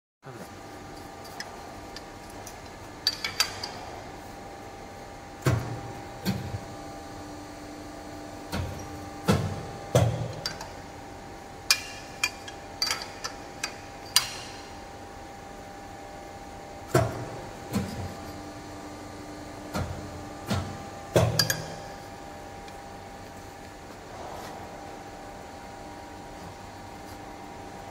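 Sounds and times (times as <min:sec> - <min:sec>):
low steady machine tone: 0:00.2 - 0:27.9
metal pipes clanking: 0:21.2 - 0:21.9.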